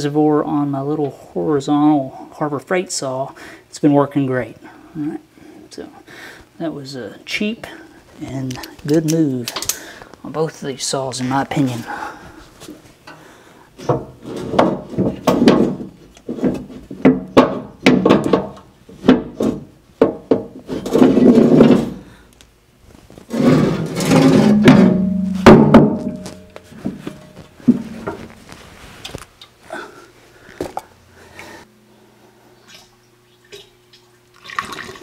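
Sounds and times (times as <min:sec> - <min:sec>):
metal knocks and clanks: 0:13.8 - 0:22.0, 0:23.3 - 0:28.3
sheet metal scraping: 0:20.7 - 0:22.1, 0:23.2 - 0:28.8.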